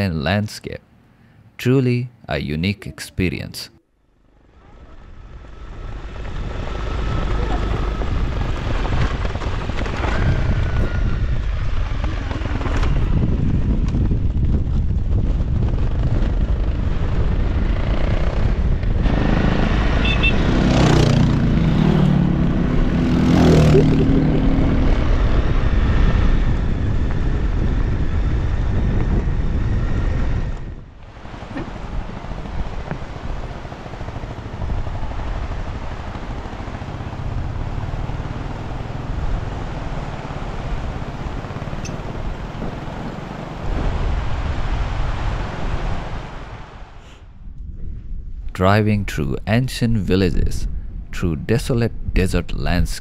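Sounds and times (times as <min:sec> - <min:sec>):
wind buffeting microphone: 0:05.2 - 0:19.9, 0:24.0 - 0:48.6
motorcycle engine revving: 0:15.7 - 0:30.3, 0:33.7 - 0:44.2.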